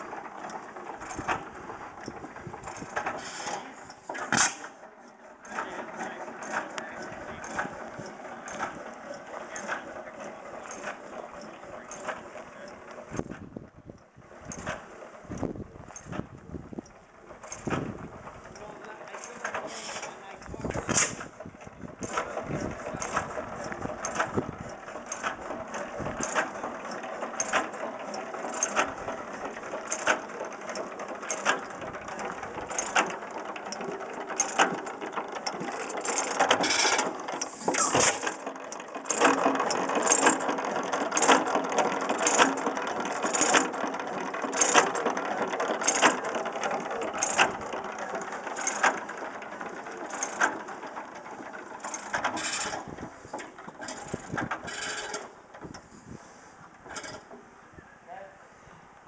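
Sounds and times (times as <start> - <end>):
stationary gas engine running: 0.0 - 57.7.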